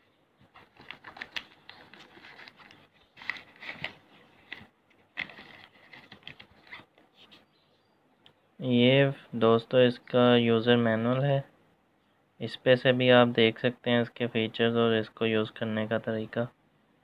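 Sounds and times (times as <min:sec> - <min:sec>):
paper and fabric case rustling: 0:00.5 - 0:06.9.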